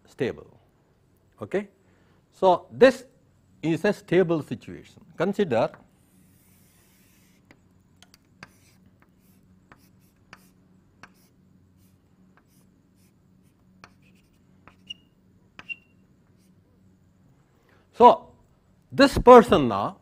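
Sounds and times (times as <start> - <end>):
low electrical hum: 0.0 - 20.0
pen scratching on paper: 6.0 - 7.6, 8.4 - 15.0
short squeaks: 14.7 - 16.0.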